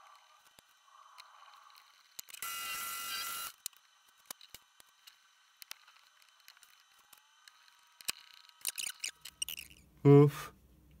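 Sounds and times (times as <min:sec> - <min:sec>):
small metal parts clicking: 0:07.6 - 0:09.8.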